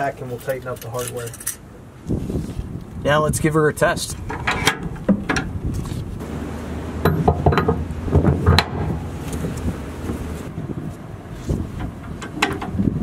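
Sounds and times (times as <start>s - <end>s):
steel hardware clinking and clanking: 0.4s - 1.6s, 7.0s - 9.1s.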